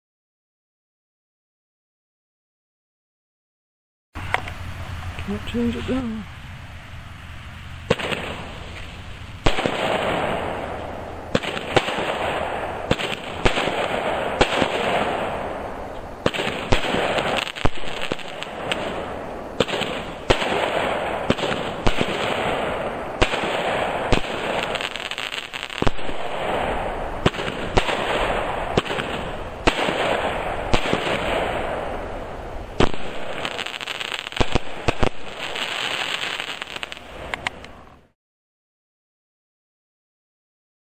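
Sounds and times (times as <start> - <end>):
crackling hiss of stars: 4.2 - 38.2
firework launch thumps and bursts: 7.8 - 15.6, 16.2 - 32.0, 32.8 - 37.6.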